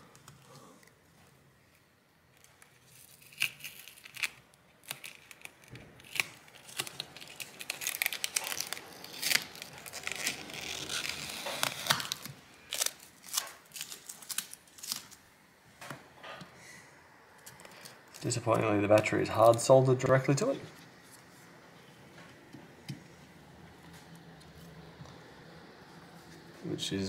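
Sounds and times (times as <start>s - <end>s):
adhesive tape peeling and crinkling: 1.7s - 15.2s, 17.4s - 21.3s.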